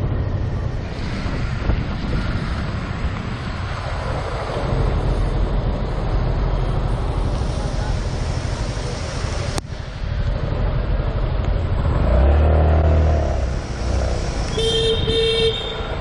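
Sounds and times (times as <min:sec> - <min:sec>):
wind and road noise: 0:00.0 - 0:16.0
horn beeps: 0:14.5 - 0:15.9.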